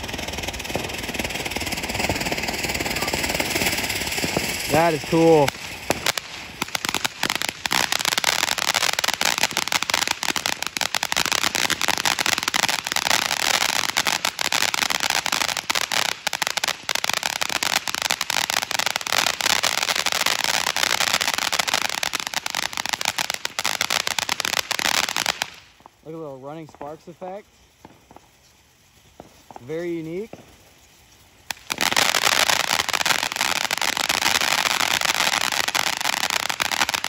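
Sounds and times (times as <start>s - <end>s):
rapid crackling: 0.0s - 25.6s
firework fountain hissing: 0.0s - 37.0s.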